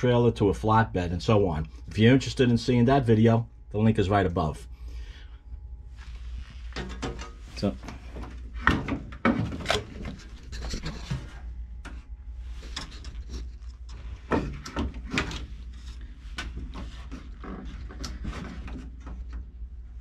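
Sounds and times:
wooden knocks and clunks: 6.8 - 10.2, 14.2 - 15.4.

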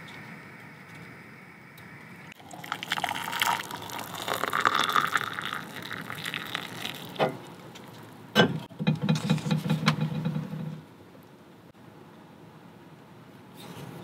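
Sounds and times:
water pouring into a mug: 2.3 - 8.1.

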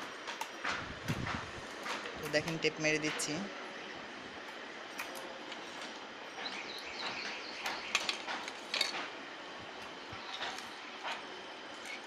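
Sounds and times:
tape crackling and clicking: 4.4 - 12.0.

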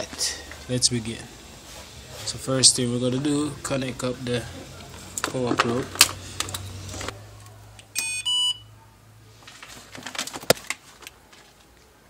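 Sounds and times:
circuit tester beeping: 8.0 - 8.7.

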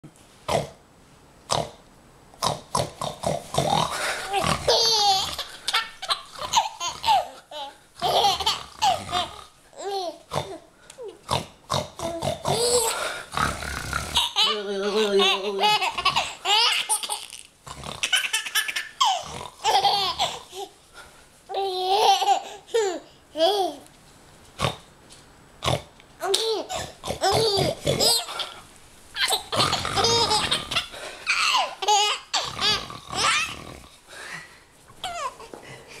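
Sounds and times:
baby laughing: 4.0 - 10.6, 12.0 - 13.0, 14.2 - 20.8, 21.5 - 23.8, 26.2 - 28.6, 29.2 - 33.6, 35.0 - 35.6
infant laughing and squealing: 29.2 - 33.6, 35.0 - 35.4.

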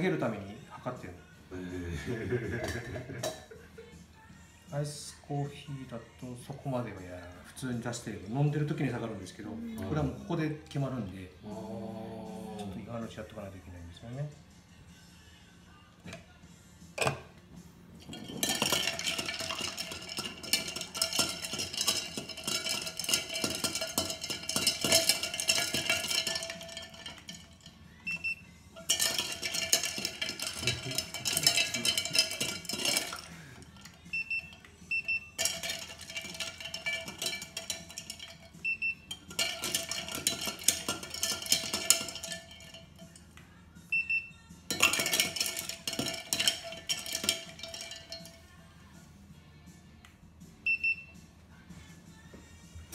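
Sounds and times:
ice cubes clinking against glass: 18.0 - 43.2, 44.7 - 48.4.

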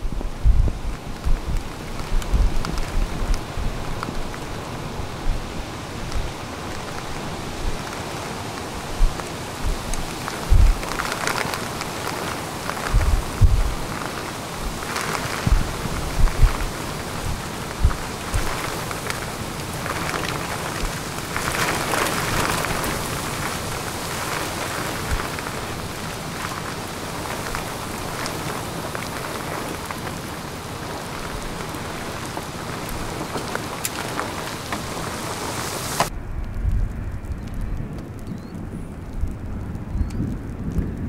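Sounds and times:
low thumps: 0.0 - 3.9, 12.9 - 13.8, 15.4 - 18.7
heavy rain: 0.0 - 41.0
low rumble of wind on microphone: 0.0 - 41.0
wind noise: 0.0 - 41.0.

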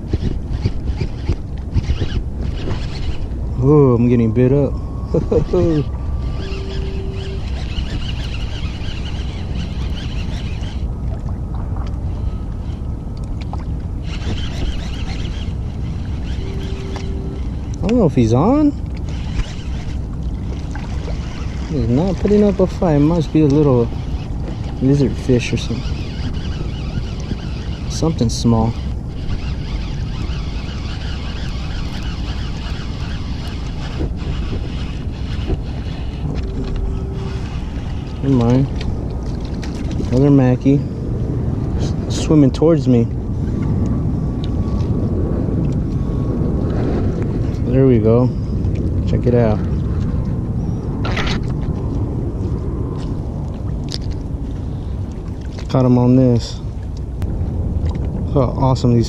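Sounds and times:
fishing reel whirring: 0.0 - 11.0, 12.0 - 41.0
wind rumbling on microphone: 0.0 - 59.0.

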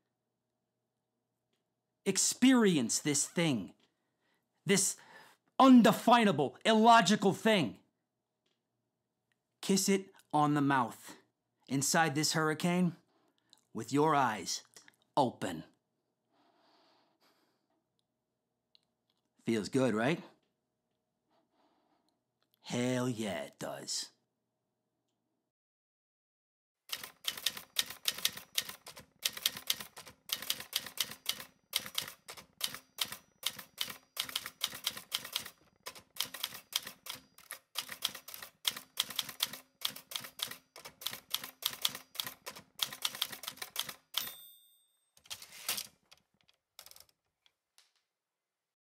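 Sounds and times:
typewriter keystrokes: 26.9 - 44.3
typewriter bell ding: 44.1 - 45.3.

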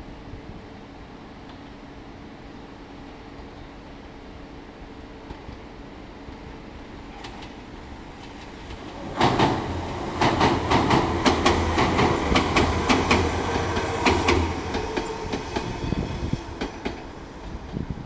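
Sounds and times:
electric train low hum: 0.0 - 18.0
train wheels clicking over rail joints: 7.1 - 17.7.

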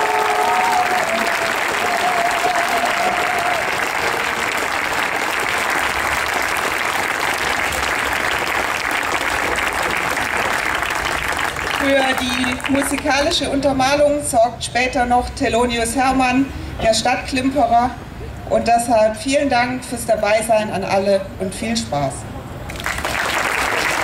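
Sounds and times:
large crowd applauding: 0.0 - 13.2, 22.7 - 24.0.

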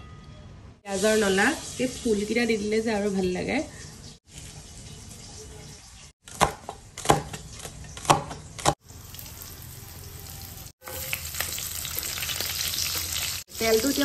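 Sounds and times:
meat sizzling in fat: 8.8 - 14.0.

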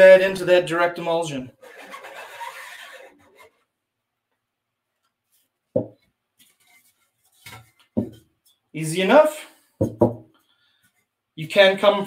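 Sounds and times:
metal scoop scraping across film: 1.6 - 3.6.

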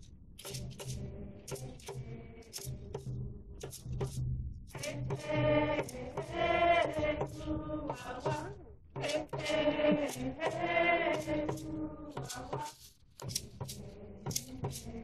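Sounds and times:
ceremonial chanting: 4.8 - 12.8.

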